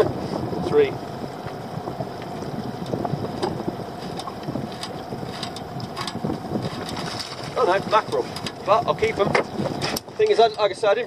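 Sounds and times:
water lapping against boat hull: 0.0 - 11.0
wind on microphone: 0.0 - 11.0.

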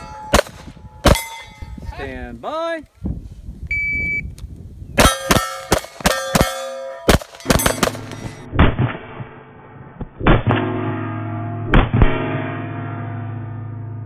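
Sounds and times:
pistol shots: 0.3 - 1.3, 5.0 - 8.4
steel target plate clanging: 1.1 - 1.8, 5.0 - 9.6, 10.3 - 13.9.

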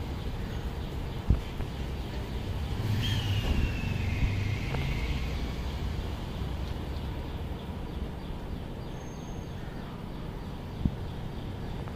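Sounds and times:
distant road traffic rumble: 0.0 - 11.9
falling whistle: 3.0 - 5.4.

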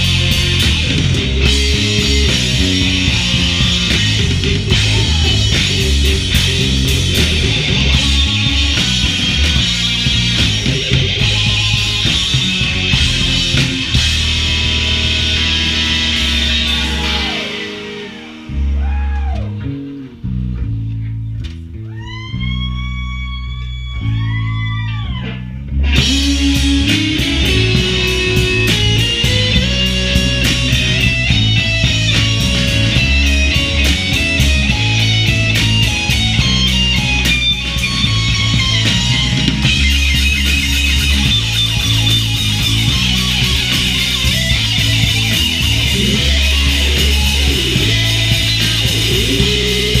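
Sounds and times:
guitar bent notes swooping: 0.0 - 50.0
live rock band playing: 0.0 - 50.0.

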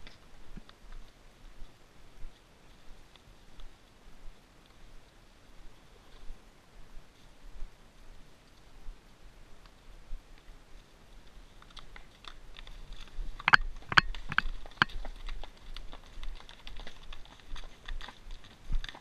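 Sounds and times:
horse hooves on rocks and gravel: 10.2 - 19.0.

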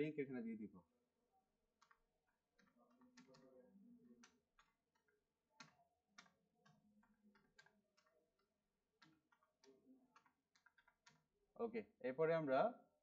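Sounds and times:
computer keyboard typing: 1.8 - 11.4.

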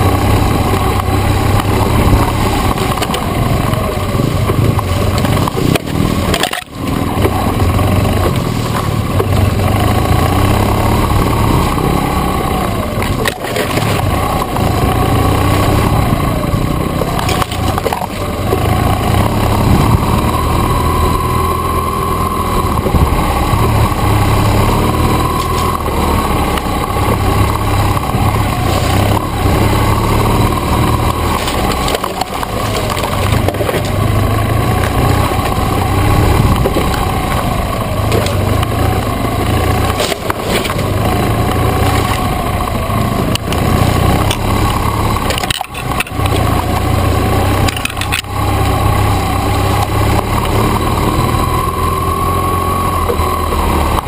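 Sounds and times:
motorcycle engine revving: 0.0 - 54.0
knocks and cracks of twigs: 4.4 - 9.4, 10.8 - 16.2, 25.0 - 38.9, 43.3 - 50.6.

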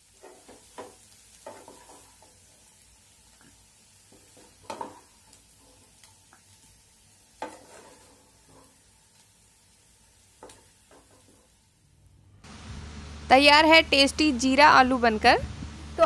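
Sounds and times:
spatula scraping a pan: 0.0 - 2.6, 4.0 - 6.0, 7.3 - 9.0.

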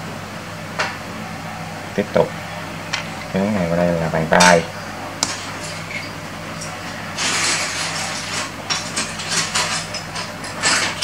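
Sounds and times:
rustling scrape: 6.9 - 9.9.

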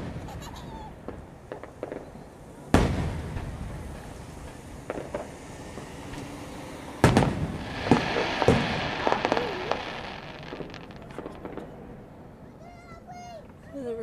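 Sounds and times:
firework bursting with bang: 0.0 - 6.4, 7.0 - 12.0
firework crackling: 0.0 - 13.3
sharp pops: 4.4 - 6.4, 7.0 - 11.8.

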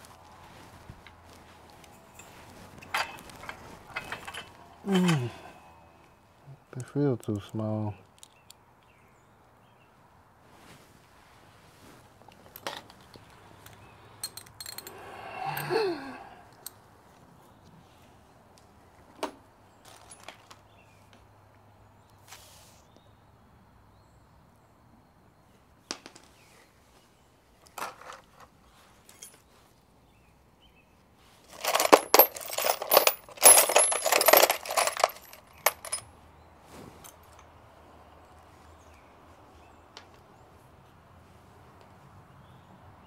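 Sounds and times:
small metal parts clinking and rattling: 0.5 - 5.5, 12.4 - 15.7, 19.8 - 20.7, 27.6 - 29.5, 31.4 - 36.1.

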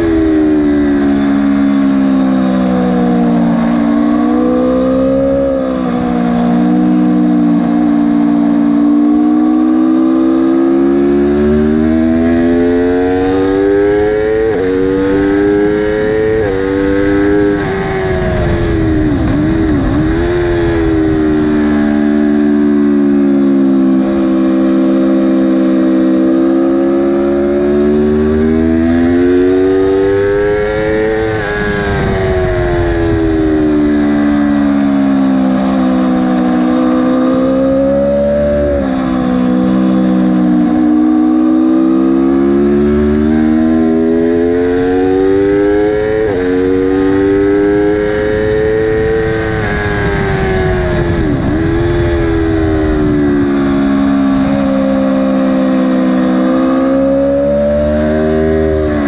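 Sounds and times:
motorcycle engine revving: 0.0 - 59.0
wind rushing over camera: 14.2 - 22.8, 28.3 - 40.3, 44.8 - 55.4.

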